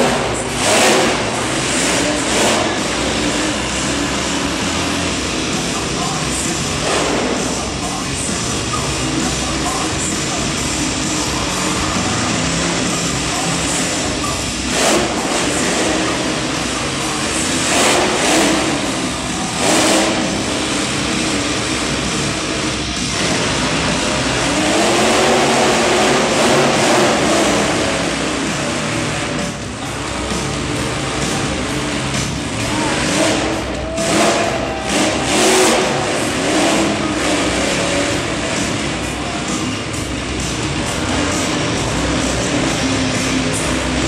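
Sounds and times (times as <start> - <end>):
monster truck engine revving: 0.0 - 44.0.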